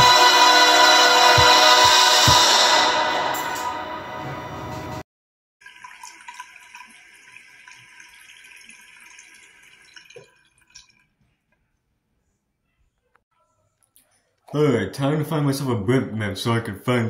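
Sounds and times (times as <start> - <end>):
sink faucet running: 5.6 - 11.0
water splashing into basin: 5.6 - 11.2.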